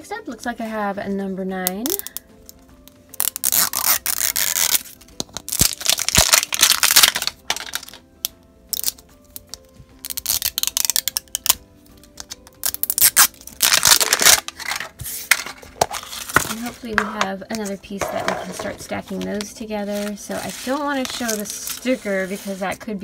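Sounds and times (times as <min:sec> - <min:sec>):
wrapper tearing and crinkling: 0:03.1 - 0:16.8, 0:19.9 - 0:22.4.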